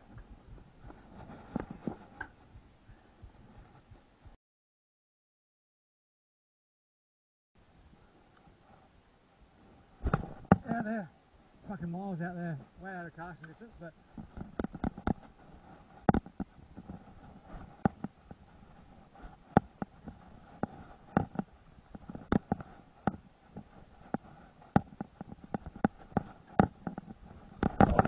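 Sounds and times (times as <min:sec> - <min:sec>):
sharp knocks and slaps: 0:10.0 - 0:10.7.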